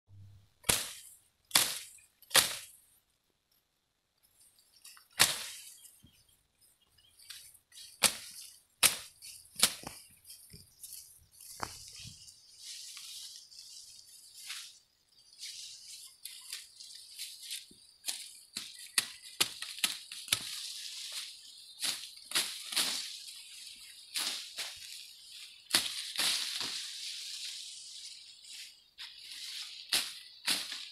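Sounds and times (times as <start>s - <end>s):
sickle slashing grass: 0.6s - 2.7s, 4.8s - 5.9s, 7.2s - 30.9s
stalks snapping: 0.6s - 2.7s, 8.0s - 10.0s
rustle of cut stems: 0.6s - 2.8s, 4.2s - 6.4s, 7.0s - 30.9s.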